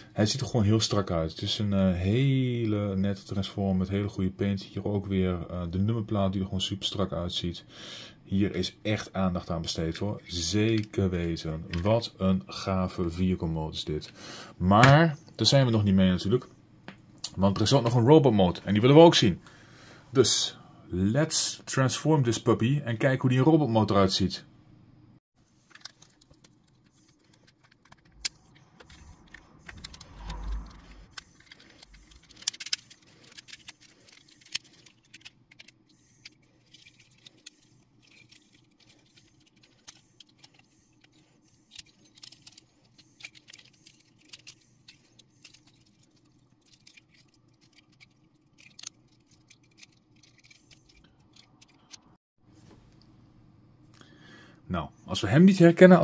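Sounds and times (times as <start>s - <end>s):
plastic toy parts clicking: 25.7s - 52.1s
brief low rumble: 29.8s - 31.1s.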